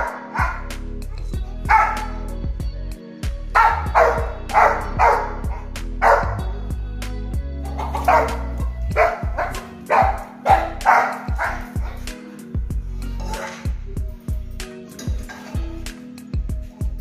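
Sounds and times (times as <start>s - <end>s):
dog barking: 0.0s - 0.7s, 1.7s - 2.4s, 3.5s - 6.5s, 7.7s - 12.2s, 13.2s - 13.7s
background music: 0.0s - 17.0s.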